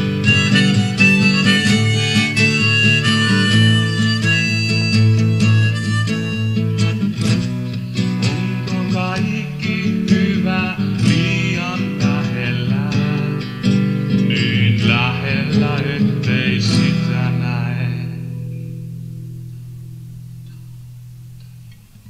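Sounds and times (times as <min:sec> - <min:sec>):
harmonica melody: 0:00.0 - 0:10.4
acoustic guitar strumming: 0:00.0 - 0:22.0.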